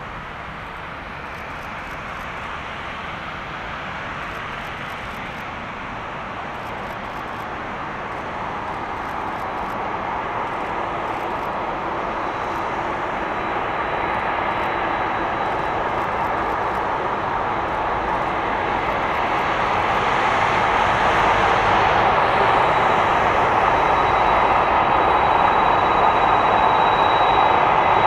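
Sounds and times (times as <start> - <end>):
faint high whine: 0.0 - 28.0
jet engines taxiing: 0.0 - 28.0.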